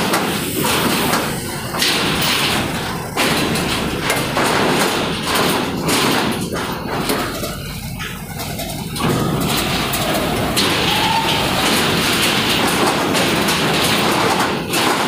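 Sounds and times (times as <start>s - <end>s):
truck engines rumbling: 0.0s - 15.0s
tyres thumping over steel ramp: 0.0s - 15.0s.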